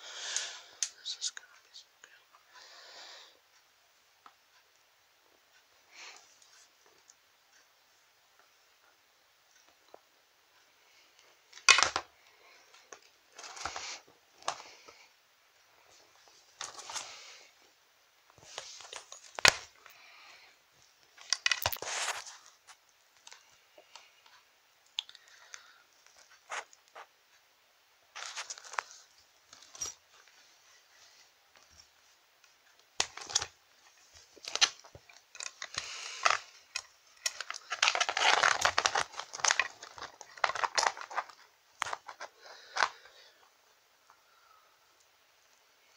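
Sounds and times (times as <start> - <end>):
rustling of plush toys: 12.7 - 15.0, 15.9 - 17.6, 21.1 - 23.5, 28.1 - 43.5.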